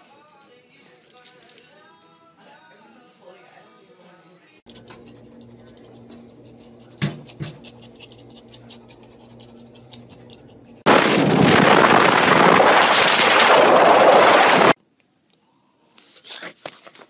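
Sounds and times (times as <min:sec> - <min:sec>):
faint low hum: 0:04.7 - 0:10.9
loud steady rushing noise: 0:10.9 - 0:14.8.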